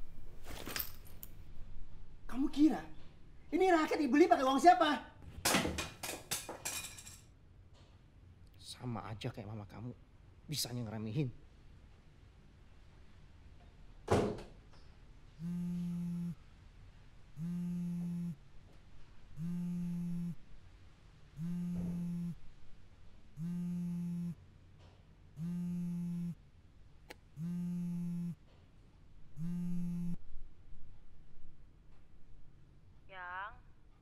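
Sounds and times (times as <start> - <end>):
phone vibrating on cushion: 15.4 - 16.4, 17.4 - 18.5, 19.4 - 20.5, 21.4 - 22.6, 23.4 - 24.4, 25.4 - 26.4, 27.3 - 28.5, 29.4 - 30.2.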